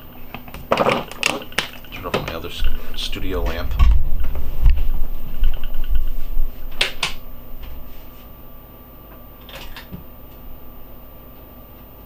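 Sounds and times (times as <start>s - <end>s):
faint diffuser hum: 0.0s - 12.0s
handling bumps: 0.4s - 7.8s.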